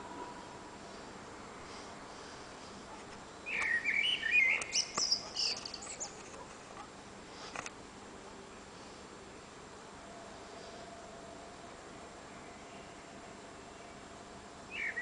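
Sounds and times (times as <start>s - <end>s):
blackbird singing: 3.4s - 6.2s, 14.7s - 15.0s.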